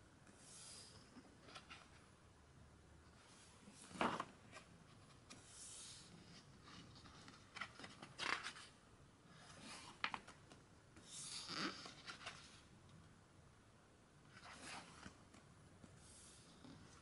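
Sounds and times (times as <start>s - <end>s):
book pages turning: 3.7s - 5.4s, 6.3s - 8.8s, 9.6s - 10.6s, 11.8s - 12.6s.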